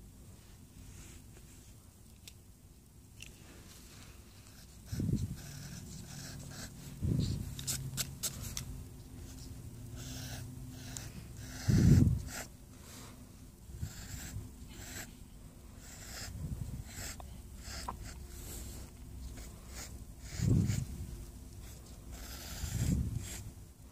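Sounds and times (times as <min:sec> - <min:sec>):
pencil scratching on paper: 0:04.5 - 0:08.6, 0:09.2 - 0:12.5, 0:13.8 - 0:15.1, 0:15.8 - 0:18.7, 0:19.4 - 0:20.9, 0:21.6 - 0:23.5.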